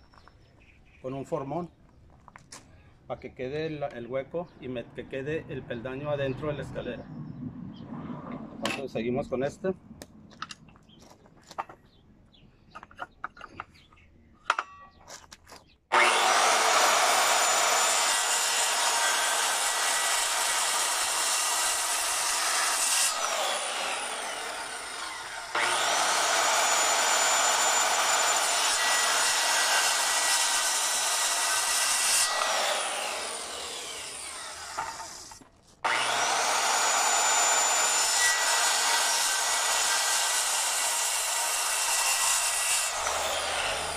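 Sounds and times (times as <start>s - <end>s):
circular saw cutting wood: 15.9s - 43.9s.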